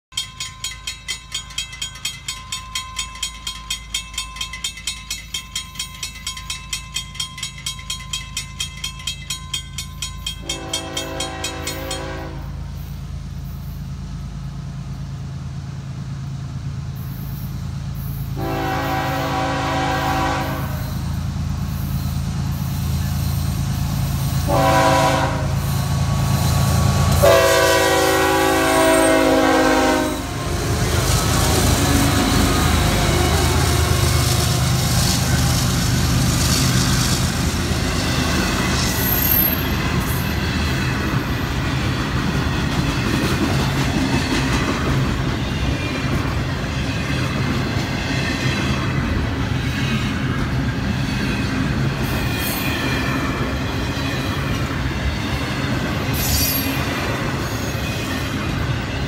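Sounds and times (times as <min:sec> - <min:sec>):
crossing bell ringing: 0:00.1 - 0:13.8, 0:37.3 - 0:42.0
locomotive rumble: 0:00.2 - 0:59.0
locomotive horn blasts: 0:10.4 - 0:12.7, 0:18.4 - 0:21.0, 0:24.4 - 0:25.7, 0:27.1 - 0:30.5.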